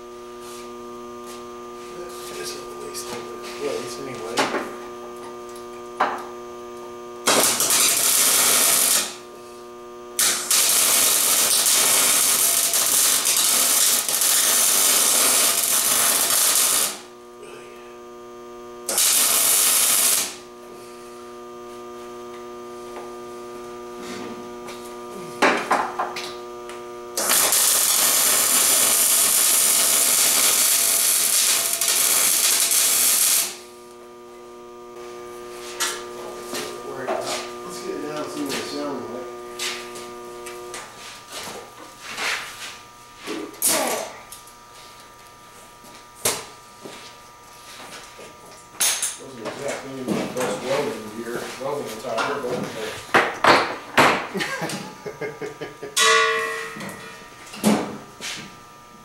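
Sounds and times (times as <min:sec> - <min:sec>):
steady motor hum: 0:00.0 - 0:59.0
angle grinder cutting metal: 0:01.9 - 0:23.2, 0:24.1 - 0:34.0, 0:34.6 - 0:41.4.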